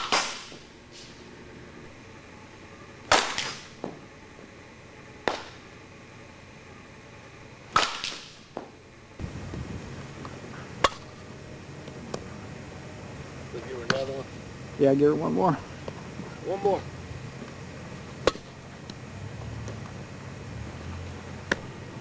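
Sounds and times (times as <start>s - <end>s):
bat hitting softball: 0.0s - 0.6s, 3.1s - 4.0s, 5.2s - 5.6s, 7.7s - 8.7s, 10.2s - 11.2s, 18.2s - 18.6s.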